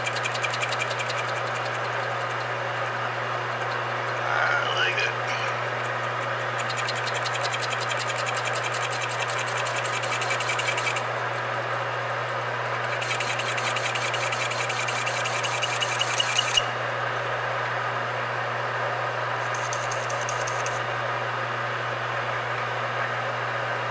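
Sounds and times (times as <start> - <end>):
rapid even ticking of cutting: 0.0 - 11.1, 12.7 - 16.7, 19.4 - 20.8
lathe motor hum: 0.0 - 17.8, 18.5 - 21.2.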